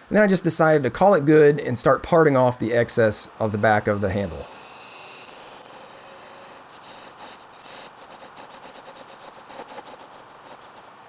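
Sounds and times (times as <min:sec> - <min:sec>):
parting tool scraping wood on lathe: 0:03.4 - 0:11.0.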